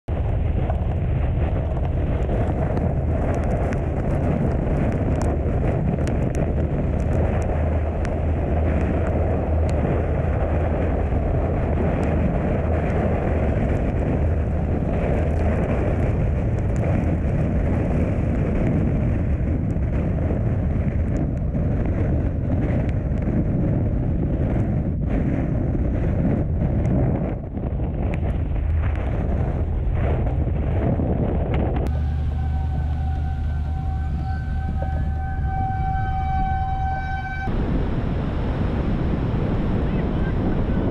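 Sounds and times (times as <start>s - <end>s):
road rumble on wet highway: 0.0s - 31.0s, 31.6s - 40.9s
wind noise: 0.0s - 40.9s
raindrops ticking: 1.8s - 5.4s, 6.0s - 9.8s.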